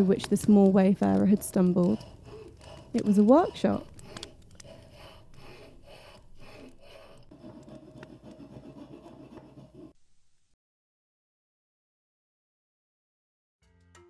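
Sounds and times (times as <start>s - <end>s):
small irregular clicks: 0.0s - 8.2s.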